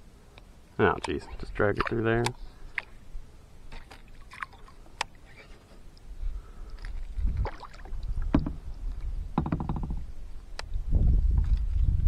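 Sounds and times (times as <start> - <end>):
knocks against plastic kayak hull: 8.3 - 8.6, 9.4 - 10.0.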